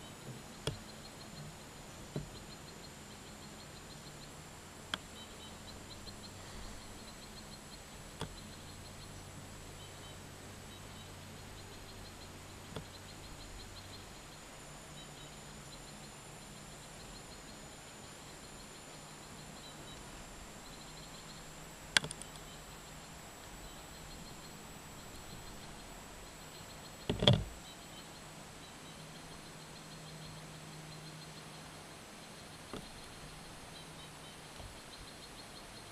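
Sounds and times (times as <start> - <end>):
sharp click: 22.0 - 22.5.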